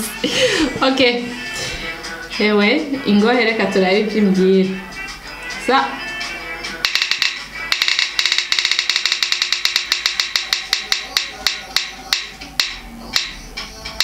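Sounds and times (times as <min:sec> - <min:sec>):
spinning wheel ticking: 0:06.8 - 0:13.4.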